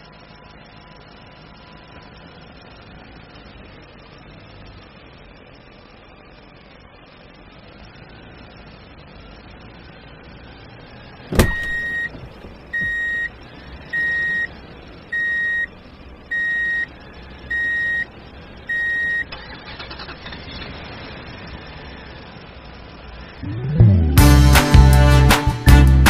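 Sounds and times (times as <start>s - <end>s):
reversing alarm beeps: 11.4s - 15.7s, 16.3s - 16.9s, 17.5s - 18.1s, 18.7s - 19.3s.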